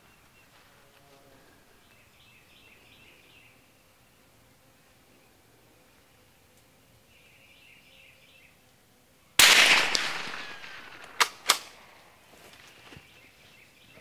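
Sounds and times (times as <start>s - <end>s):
sharp clicks: 9.4s - 11.8s
rifle shot: 9.4s - 12.1s.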